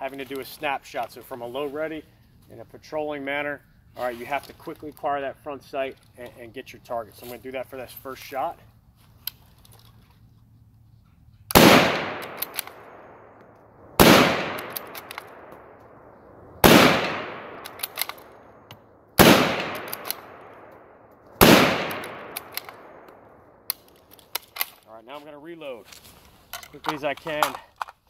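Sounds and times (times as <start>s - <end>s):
rifle bolt clicks: 11.5s - 15.7s, 16.7s - 24.9s
rifle shots echoing: 11.5s - 23.9s.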